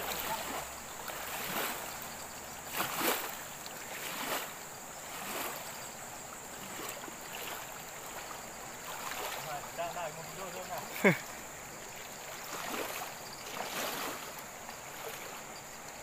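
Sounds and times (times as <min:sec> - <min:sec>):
water splashing: 0:00.0 - 0:16.0.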